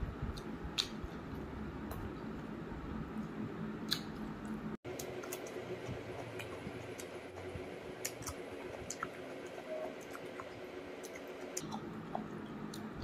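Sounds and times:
wet chewing and squishing: 3.2 - 9.2.

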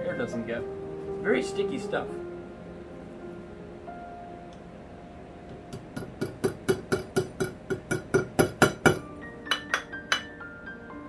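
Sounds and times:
hammer tapping on metal: 5.5 - 10.4.

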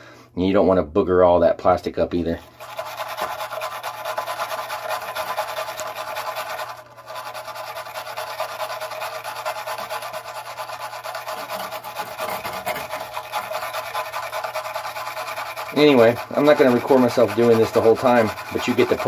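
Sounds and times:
wire brush scraping metal: 2.6 - 19.0.

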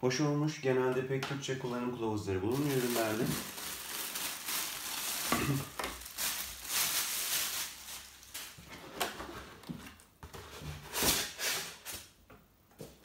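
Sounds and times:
plastic bag crinkling: 2.4 - 8.7
cardboard packaging rustling: 2.5 - 11.5.

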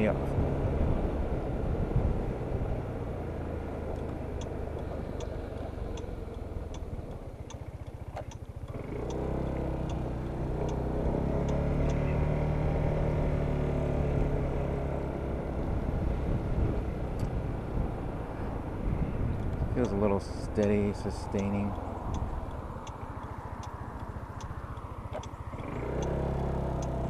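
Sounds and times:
road and wind noise: 0.0 - 27.0
scooter engine running: 2.6 - 27.0
light ticking: 3.9 - 10.8, 11.4 - 12.0, 19.4 - 27.0.

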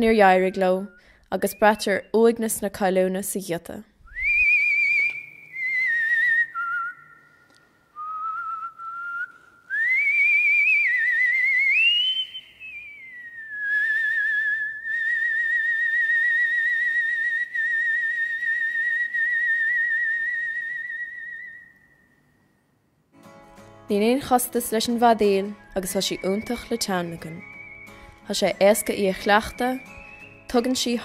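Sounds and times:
man whistling a melody: 4.0 - 22.4, 25.2 - 31.0.

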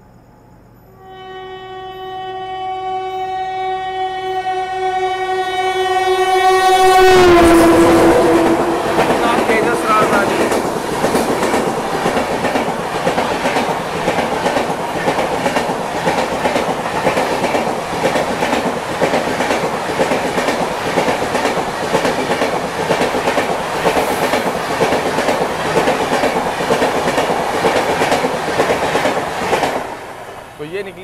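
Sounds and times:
train passing at speed: 4.1 - 31.0
wheels clacking over rail joints: 8.4 - 30.0.

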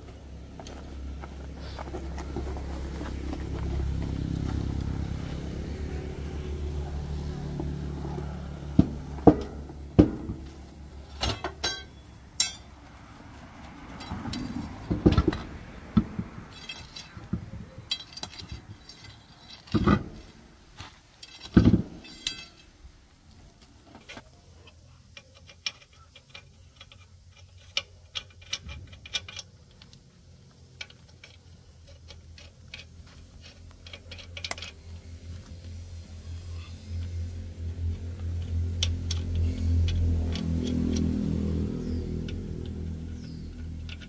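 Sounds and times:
metal tools knocking and clinking: 11.1 - 12.7, 16.1 - 20.1, 21.2 - 22.7.

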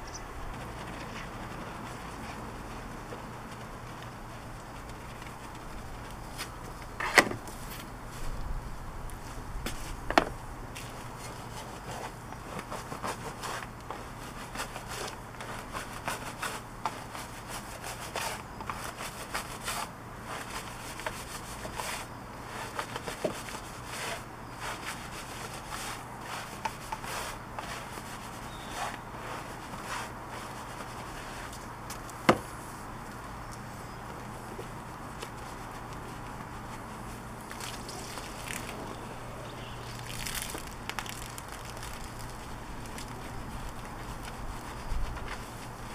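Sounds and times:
brush scrubbing a wheel: 10.8 - 32.0, 34.4 - 45.9.

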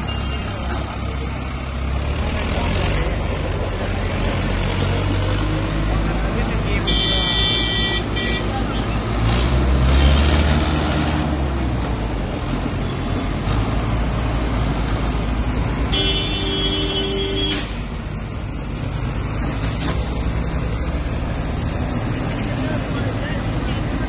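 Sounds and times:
tractor engines straining: 0.0 - 24.0
vehicle horn: 6.8 - 8.6, 15.9 - 17.7.

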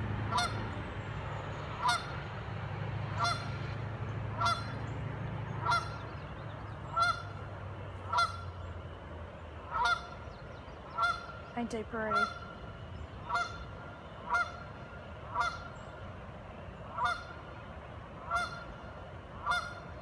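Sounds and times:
steady low rumble: 0.0 - 20.0
geese honking: 0.2 - 0.7, 1.7 - 2.3, 3.0 - 4.8, 5.6 - 6.1, 6.8 - 8.8, 9.6 - 10.3, 10.9 - 16.0, 16.8 - 17.6, 18.2 - 20.0.

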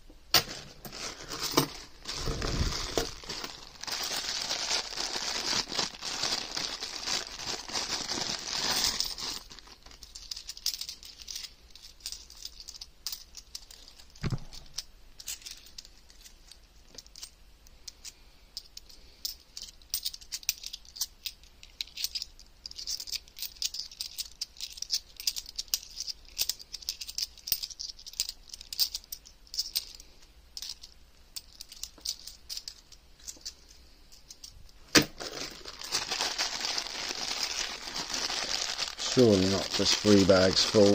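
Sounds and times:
plastic bag crinkling: 0.4 - 11.5, 34.9 - 40.9
coins clinking: 8.7 - 16.3.

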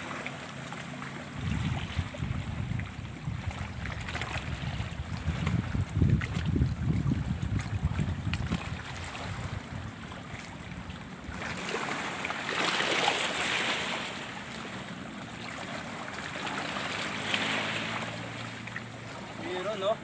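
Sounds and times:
shallow water splashing: 0.0 - 20.0
wind rumble on microphone: 1.2 - 11.8.

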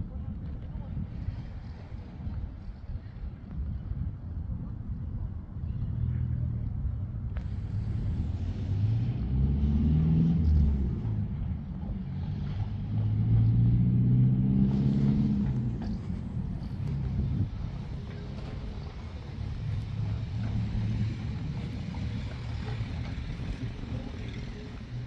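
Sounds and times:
steady low rumble: 0.0 - 25.0
motor engine humming: 15.0 - 25.0.

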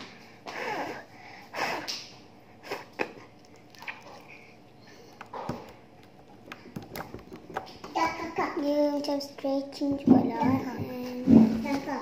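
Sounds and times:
slime squishing: 3.0 - 8.0.

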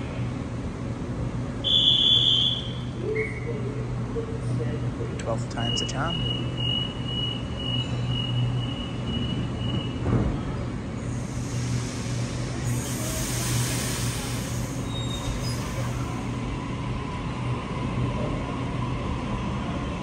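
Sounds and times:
low hum of train equipment: 0.0 - 20.0
high hiss: 11.1 - 16.6.

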